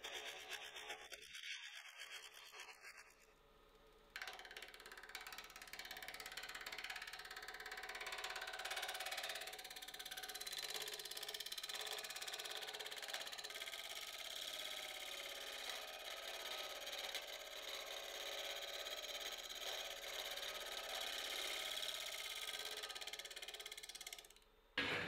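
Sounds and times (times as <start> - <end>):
lathe tool scraping chatter: 13.0 - 24.3.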